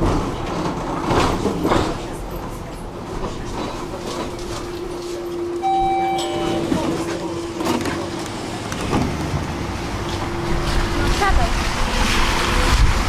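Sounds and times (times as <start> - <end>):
tram hum: 0.0 - 13.0
brief higher tone: 5.6 - 7.4.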